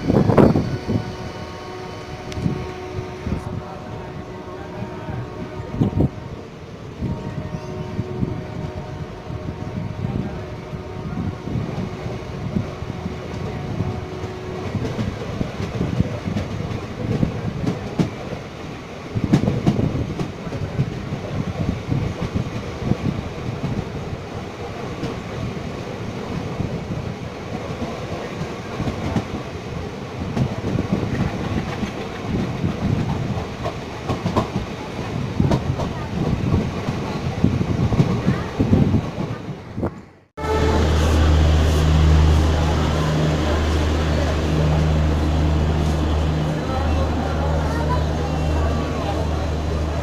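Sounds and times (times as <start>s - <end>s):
train wheels clacking over rail joints: 30.3s - 34.8s.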